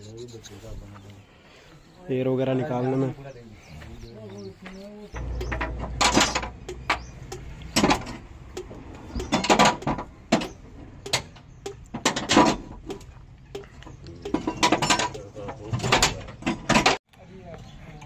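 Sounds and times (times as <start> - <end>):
mechanical rattling and scraping: 5.2 - 17.0.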